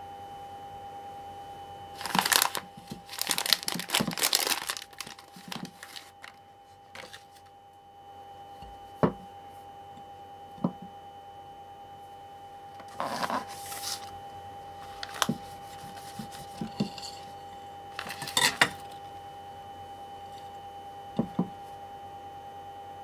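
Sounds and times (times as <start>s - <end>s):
plastic wrapper crinkling: 2.0s - 7.4s, 12.8s - 14.1s, 14.8s - 16.7s
faint steady tone: 7.4s - 12.8s.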